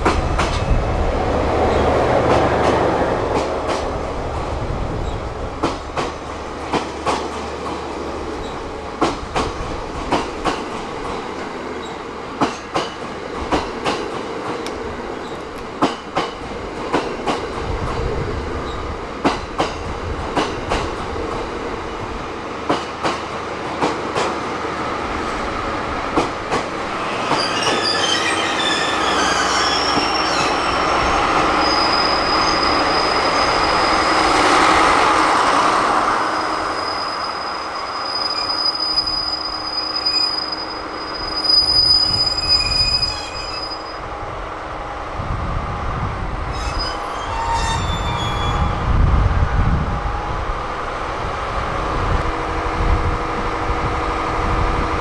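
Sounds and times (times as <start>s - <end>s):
train wheels clicking on rail joints: 0.0s - 0.8s, 1.6s - 21.5s, 22.6s - 24.5s, 25.2s - 35.6s
low train rumble: 0.0s - 55.0s
high wheel squeal: 26.9s - 34.3s, 36.4s - 44.0s, 46.5s - 48.8s.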